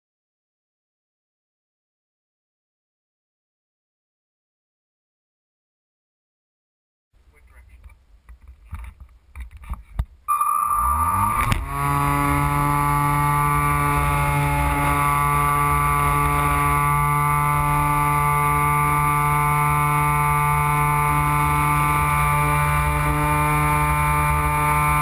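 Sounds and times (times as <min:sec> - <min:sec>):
electric motor and propeller whine: 0:10.3 - 0:25.0.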